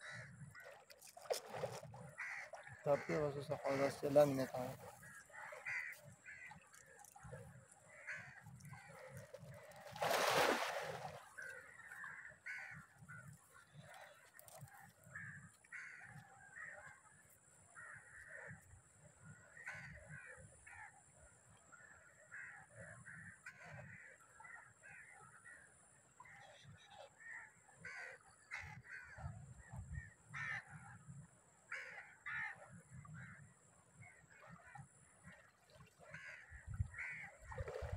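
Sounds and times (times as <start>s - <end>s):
crows cawing: 2.1s - 3.2s, 5.0s - 6.6s, 7.9s - 9.2s, 11.4s - 13.3s, 15.1s - 16.8s, 19.6s - 20.9s, 22.3s - 25.1s, 27.2s - 29.2s, 30.4s - 30.7s, 31.7s - 32.6s, 36.1s - 37.4s.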